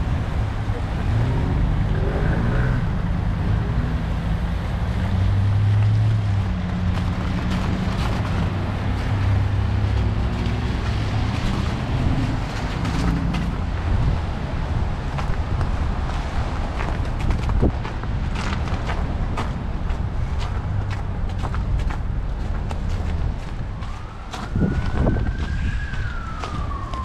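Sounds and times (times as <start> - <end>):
cars passing on wet street: 0.0 - 27.0
footsteps crunching on slush: 5.0 - 27.0
wind buffeting microphone: 5.6 - 27.0.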